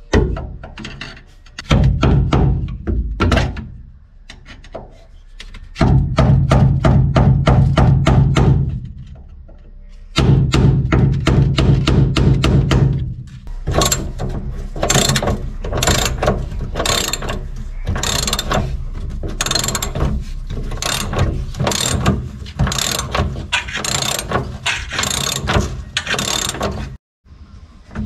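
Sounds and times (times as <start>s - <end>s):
socket ratchet wrench clicking: 15.8s - 16.2s, 16.8s - 17.4s, 18.0s - 18.6s, 19.4s - 20.0s, 20.8s - 22.1s, 22.7s - 26.6s.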